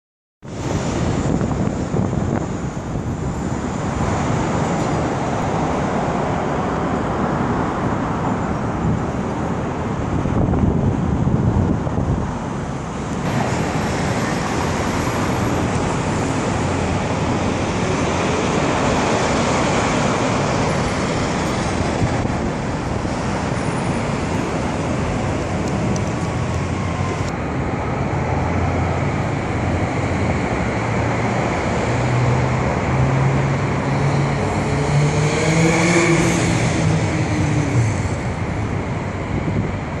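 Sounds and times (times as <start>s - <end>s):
road traffic noise: 0.4s - 40.0s
vehicle engine accelerating past: 32.1s - 38.1s.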